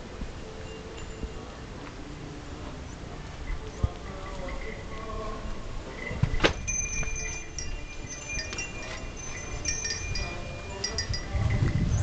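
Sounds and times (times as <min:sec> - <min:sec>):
small metal chimes ringing: 0:00.4 - 0:01.7, 0:05.9 - 0:12.0.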